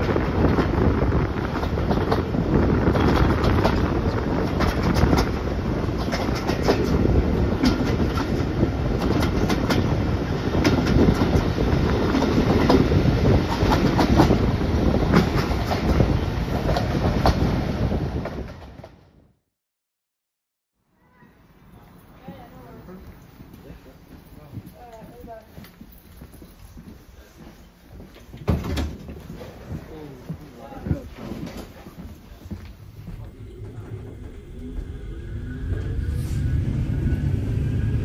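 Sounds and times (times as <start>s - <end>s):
wheels clicking over rail joints: 0.0s - 17.4s
train rumbling on track: 0.0s - 19.3s, 21.6s - 38.0s.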